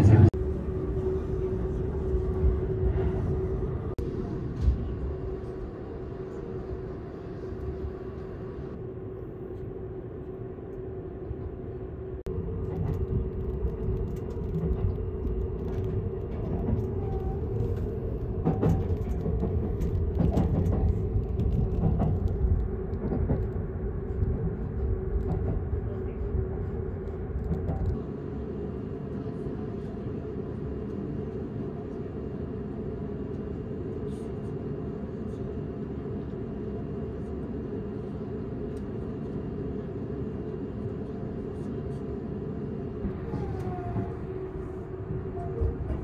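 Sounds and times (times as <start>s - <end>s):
train wheels rumbling on rails: 0.0s - 8.8s, 12.2s - 28.1s, 42.6s - 46.0s
steady hum: 0.0s - 46.0s.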